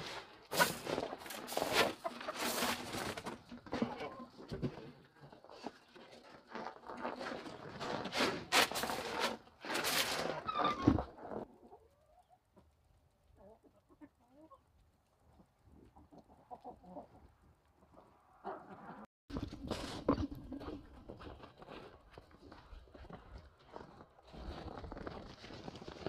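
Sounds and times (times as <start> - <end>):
chickens clucking softly: 10.6 - 19.1.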